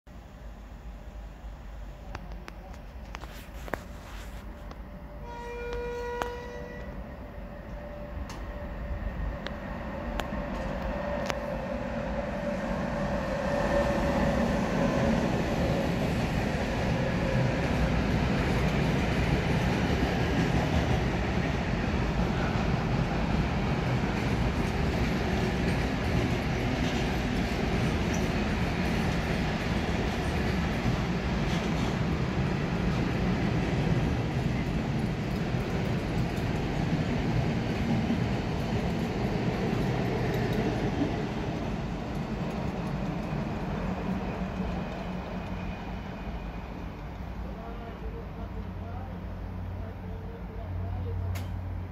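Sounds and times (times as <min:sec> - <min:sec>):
freight train rolling past: 0:00.2 - 0:51.9.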